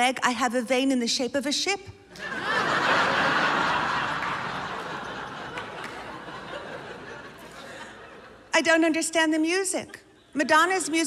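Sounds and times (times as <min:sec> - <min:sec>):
audience laughing: 0:02.1 - 0:08.5.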